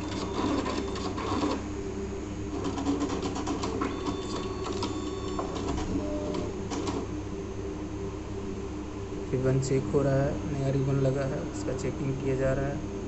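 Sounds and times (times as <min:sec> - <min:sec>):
thin printer whine: 0:00.0 - 0:07.4.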